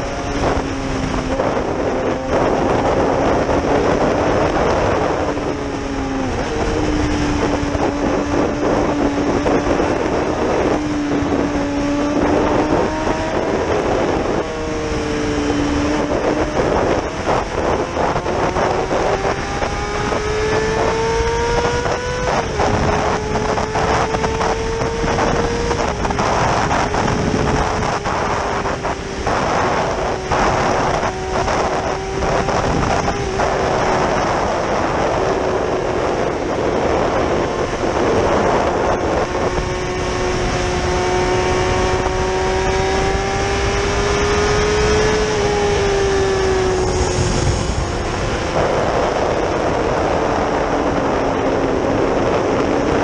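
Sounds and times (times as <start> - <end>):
motorcycle engine cruising: 0.0 - 53.0
wind rushing over microphone: 0.0 - 53.0.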